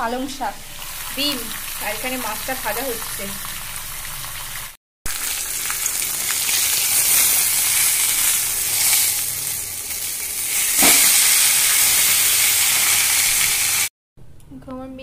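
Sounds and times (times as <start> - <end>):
fish frying in oil: 0.3 - 13.9.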